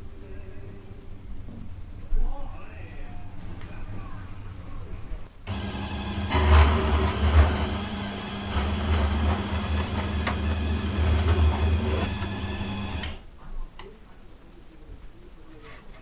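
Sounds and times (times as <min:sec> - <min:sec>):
electric slicer cutting bread: 0:05.5 - 0:13.2.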